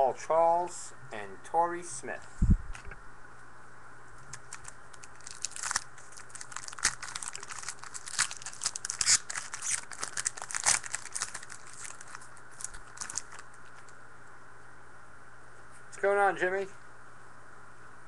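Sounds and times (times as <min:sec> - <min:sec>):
card pack wrapper crinkling: 0:04.3 - 0:13.9.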